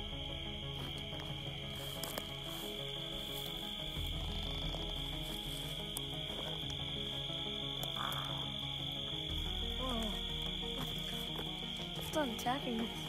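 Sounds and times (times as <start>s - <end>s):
crickets and insects chirping: 0.0s - 13.0s
music of sustained low notes: 0.0s - 13.0s.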